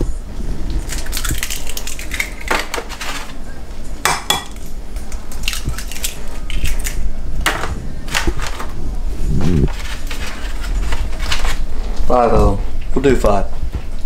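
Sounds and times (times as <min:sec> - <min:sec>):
eggshells cracking: 0:00.8 - 0:03.4, 0:04.3 - 0:07.1.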